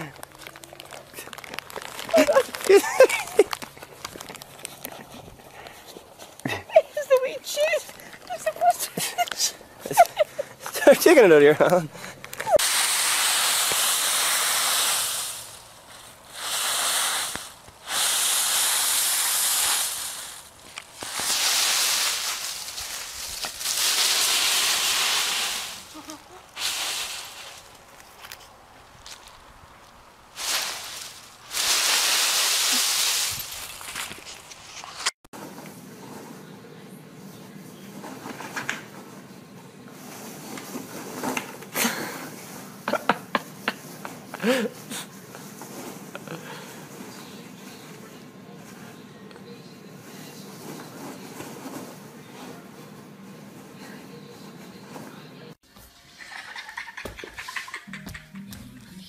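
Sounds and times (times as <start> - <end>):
dry leaves rustling and crunching: 0.0 - 5.1, 12.6 - 35.1.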